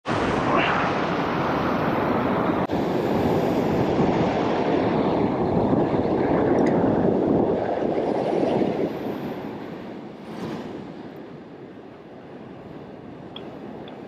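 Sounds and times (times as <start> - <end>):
ocean surf over rocks: 0.0 - 14.0
wind buffeting microphone: 0.1 - 14.0.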